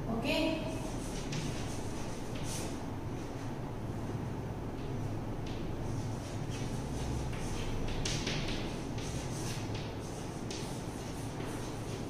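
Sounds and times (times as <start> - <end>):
chalk scratching on chalkboard: 0.8 - 2.8, 5.9 - 12.0.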